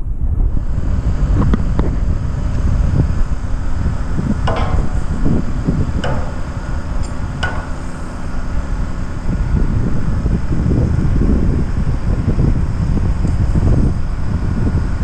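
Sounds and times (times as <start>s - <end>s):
wind buffeting microphone: 0.0s - 15.0s
sharp ringing knocks: 4.2s - 9.0s.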